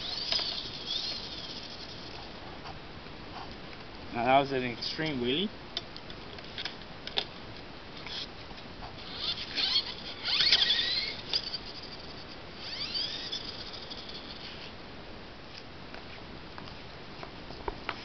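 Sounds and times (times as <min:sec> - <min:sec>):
toy truck electric motor whining: 0:00.0 - 0:02.3, 0:09.0 - 0:14.6.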